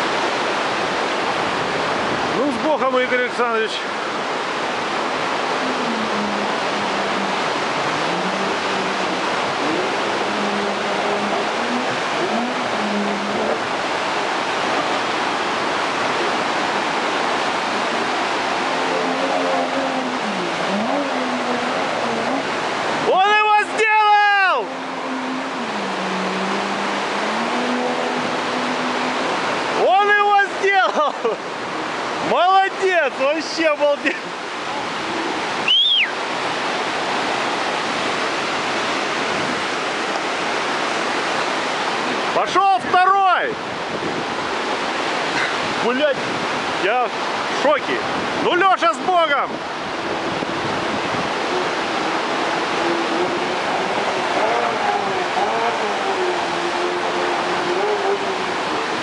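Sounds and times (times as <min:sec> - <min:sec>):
outboard motor: 0:00.0 - 0:59.0
whitewater rapid rushing: 0:00.0 - 0:59.0
short high whistle: 0:35.6 - 0:36.2.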